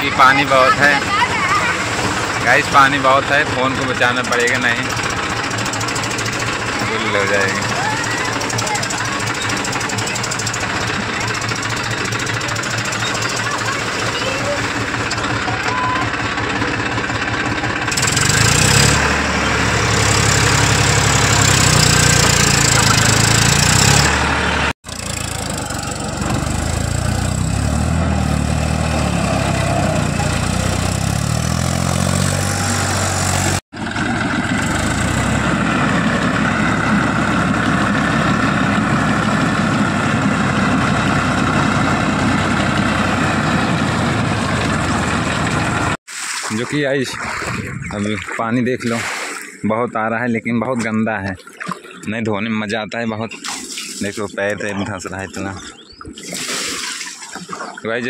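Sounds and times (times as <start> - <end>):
tractor diesel engine running: 0.0 - 46.0
water churning around wheels: 0.0 - 58.0.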